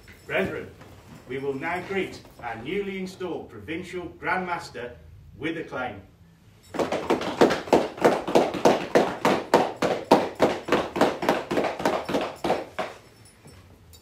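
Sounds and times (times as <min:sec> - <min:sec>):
group clapping in unison: 0:06.8 - 0:12.8.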